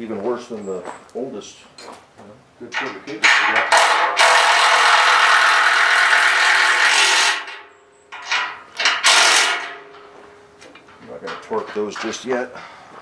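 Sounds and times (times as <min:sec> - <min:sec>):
cordless impact wrench hammering: 0:03.3 - 0:07.6, 0:08.2 - 0:09.8.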